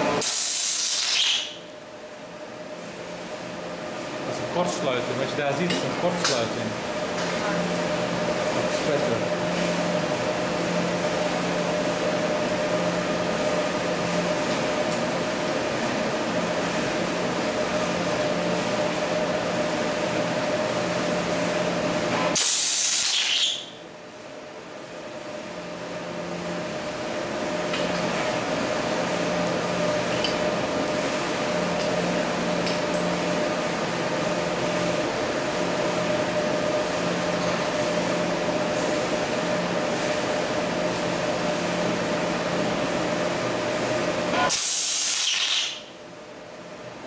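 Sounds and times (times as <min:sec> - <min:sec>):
steady machine hum: 0:00.0 - 0:47.0
stud weld hissing crackle: 0:00.2 - 0:01.5, 0:44.5 - 0:45.8.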